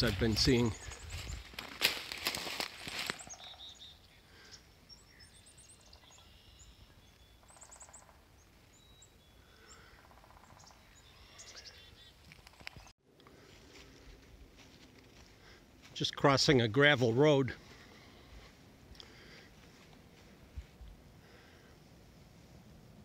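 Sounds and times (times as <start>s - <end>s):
footsteps in dry leaves: 0.0s - 3.8s, 13.3s - 16.2s
birds chirping and trilling: 0.0s - 12.9s.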